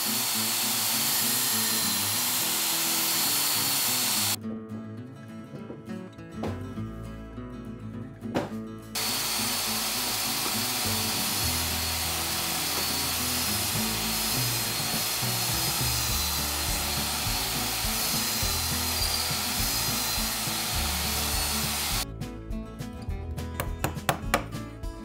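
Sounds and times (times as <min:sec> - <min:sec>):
drill press boring into wood: 0:00.0 - 0:04.4, 0:09.0 - 0:22.0.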